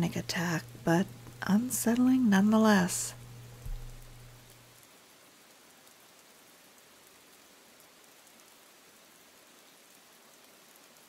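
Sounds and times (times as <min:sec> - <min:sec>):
rain on a hard wet surface: 0:02.7 - 0:11.0.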